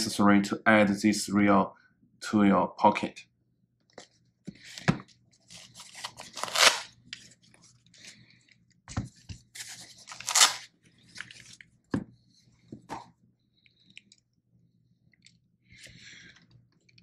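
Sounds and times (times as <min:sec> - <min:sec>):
wrapping rustling and crinkling: 0:05.4 - 0:08.3, 0:09.4 - 0:11.7.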